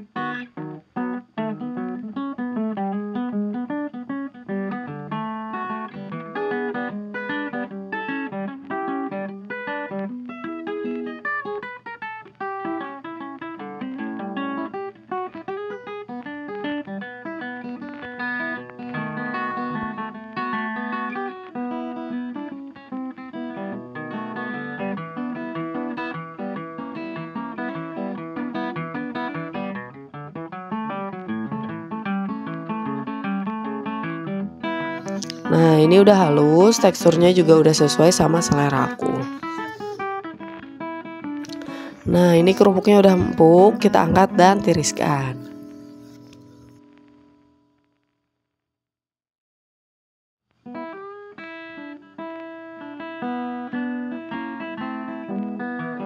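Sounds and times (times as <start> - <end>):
plucked guitar picking: 0.0 - 47.5, 50.7 - 56.0.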